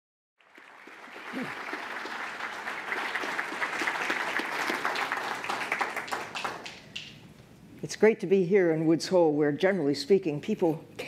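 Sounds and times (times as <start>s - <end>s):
audience applauding: 0.4s - 7.2s.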